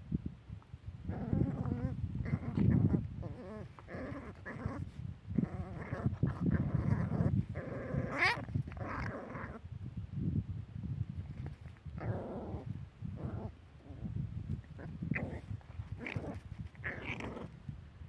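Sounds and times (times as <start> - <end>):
dogs growling: 1.1 - 9.6, 12.0 - 17.6
dog yelping: 8.0 - 9.5.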